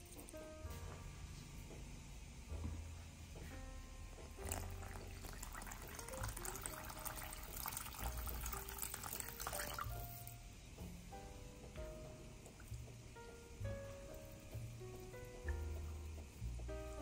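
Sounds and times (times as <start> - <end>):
water pouring into a bowl: 4.4 - 10.3.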